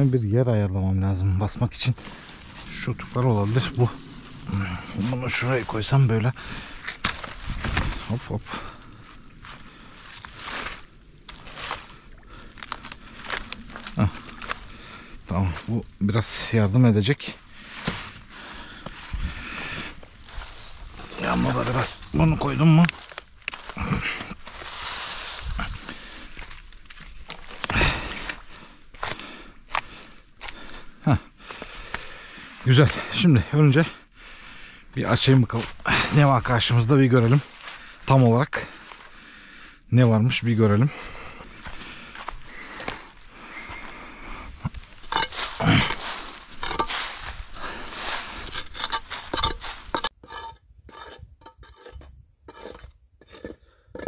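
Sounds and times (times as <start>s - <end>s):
footsteps on wet ground: 1.5s - 15.9s, 17.5s - 30.8s, 40.8s - 50.1s
hand tool scraping stone and earth: 1.6s - 8.5s, 17.7s - 29.2s, 43.6s - 54.0s
wood pieces knocking and scraping: 44.7s - 47.2s, 48.0s - 54.0s.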